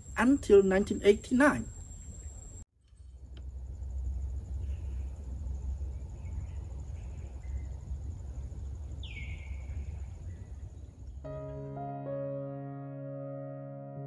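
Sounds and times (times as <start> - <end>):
bird chirps: 8.8 - 11.3
electric piano music: 11.2 - 14.0.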